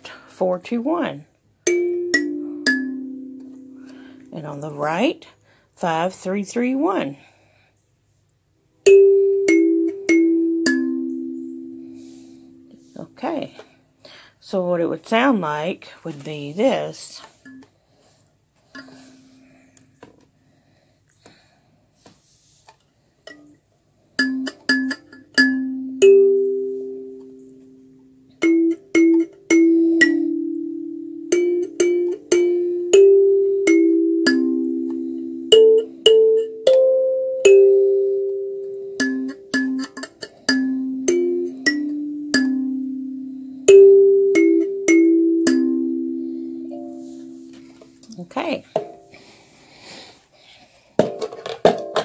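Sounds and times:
kalimba melody: 1.6 - 4.4, 8.9 - 12.9, 24.2 - 47.9.

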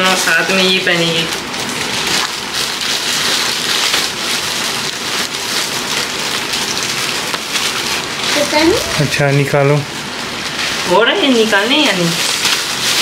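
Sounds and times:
plastic bags crinkling: 0.1 - 9.4.

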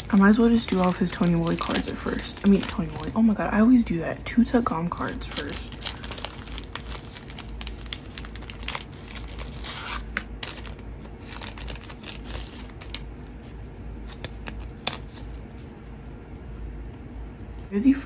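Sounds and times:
plastic packaging tearing and crinkling: 0.0 - 3.2, 4.9 - 13.4, 14.0 - 15.5.

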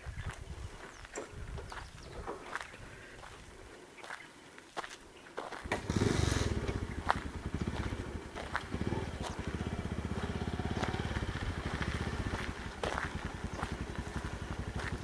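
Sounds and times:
small engine pulsing: 5.7 - 15.0.

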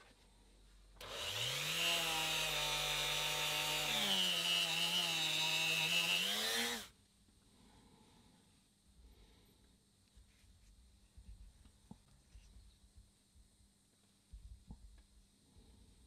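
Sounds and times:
rotary tool whining: 1.0 - 6.9.

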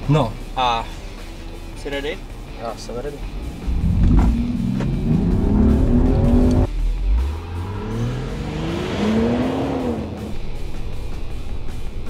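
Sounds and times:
car engine accelerating hard: 3.3 - 12.0.

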